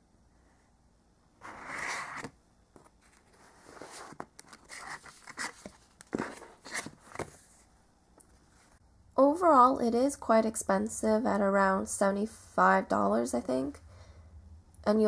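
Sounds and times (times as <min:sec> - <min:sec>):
book scraping and tapping in box: 0:01.4 - 0:07.4
pages rustling: 0:01.4 - 0:07.7.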